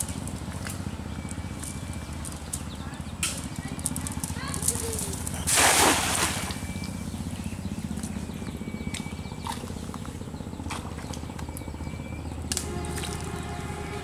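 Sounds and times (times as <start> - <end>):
net splashing into water: 5.5 - 6.6.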